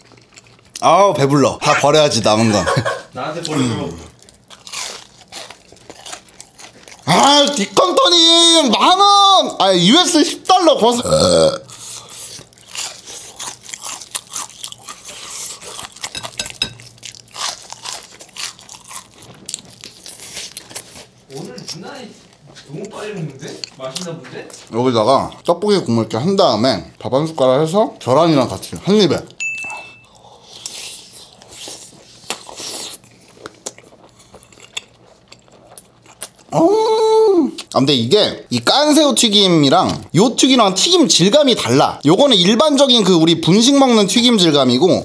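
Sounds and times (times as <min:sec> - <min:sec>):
crunchy chewing: 0:00.0 - 0:01.0, 0:03.4 - 0:07.8, 0:11.7 - 0:24.7, 0:30.0 - 0:36.6.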